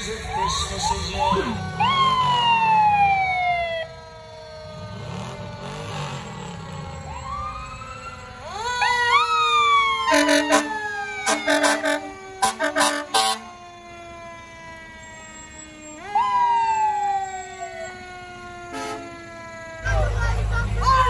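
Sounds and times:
fire engine siren whooping: 0.0 - 21.0
fire truck air horn blasts: 10.1 - 13.6, 18.6 - 19.4.

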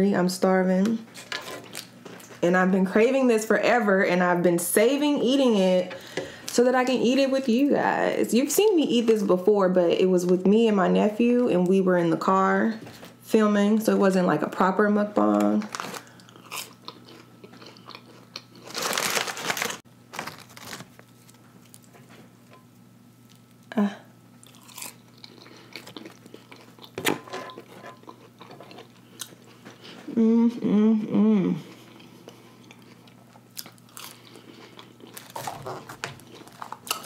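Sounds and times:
crunchy chewing: 15.7 - 22.0, 24.4 - 30.1, 31.7 - 37.0
person humming mmm: 30.0 - 32.1.

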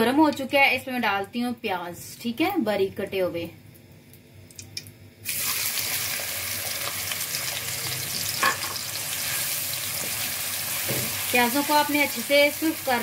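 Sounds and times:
onions sizzling in hot oil: 5.2 - 13.0.

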